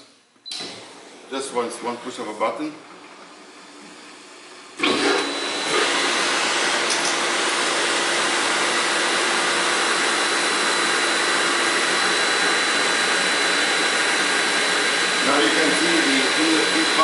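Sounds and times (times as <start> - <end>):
pumps humming and hissing: 0.5 - 17.0.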